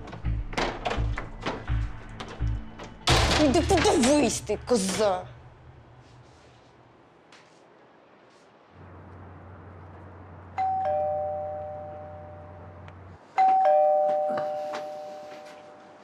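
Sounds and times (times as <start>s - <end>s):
two-tone doorbell ding-dong: 10.6s - 12.6s, 13.4s - 15.4s.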